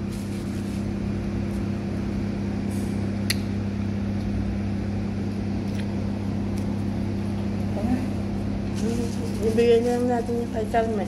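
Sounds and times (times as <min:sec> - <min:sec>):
low machine hum: 0:00.0 - 0:11.0
small click: 0:03.3 - 0:03.5.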